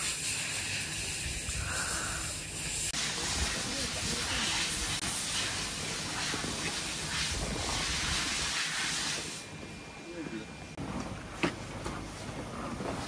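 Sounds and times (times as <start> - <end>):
wind hiss: 0.0 - 10.2.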